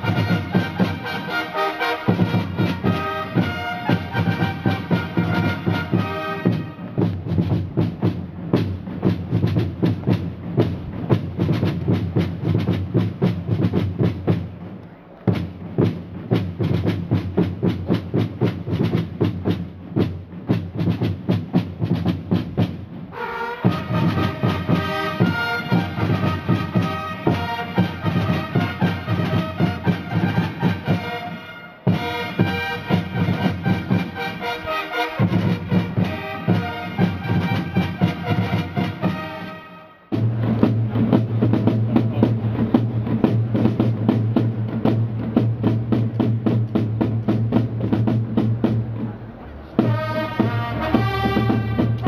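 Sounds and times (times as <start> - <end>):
fanfare trumpets: 0.0 - 7.4, 23.1 - 41.2, 49.8 - 52.0
drumbeats: 0.0 - 52.0.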